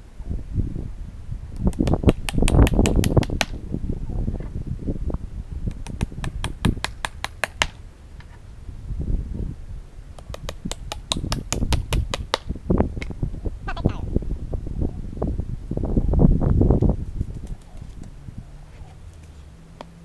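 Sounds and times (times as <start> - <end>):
hammer tapping nails into wood: 5.7 - 7.8, 10.2 - 12.4.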